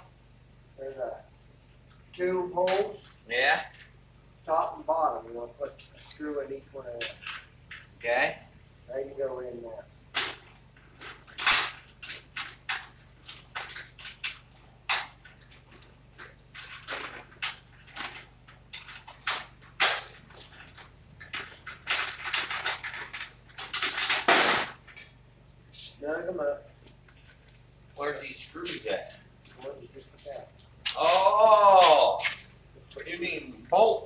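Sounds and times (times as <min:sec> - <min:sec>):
metal hardware clanks and scrapes: 0:10.2 - 0:15.2, 0:16.6 - 0:26.0.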